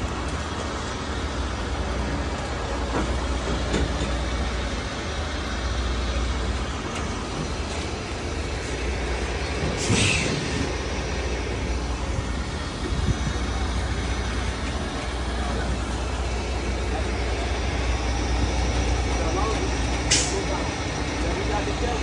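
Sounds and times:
truck diesel engine rumbling: 0.0 - 22.0
air hiss: 9.6 - 11.0.

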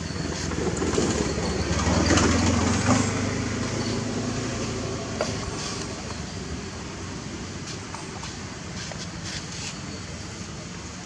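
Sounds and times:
low engine hum: 0.0 - 8.7
noisy haze: 0.0 - 11.0.

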